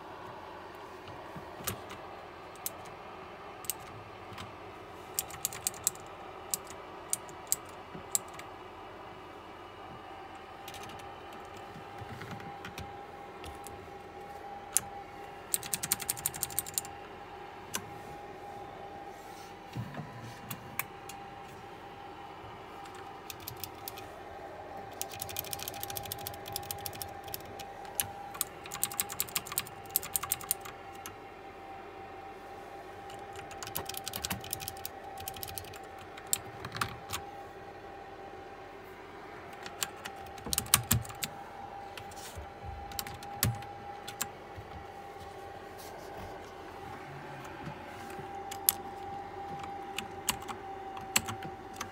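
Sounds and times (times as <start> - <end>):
mechanical keyboard clicks: 3.6 - 4.5, 5.2 - 8.5, 15.5 - 16.9, 22.8 - 24.0, 24.9 - 31.1, 33.1 - 37.2, 39.6 - 41.3, 42.9 - 44.3, 49.6 - 51.9.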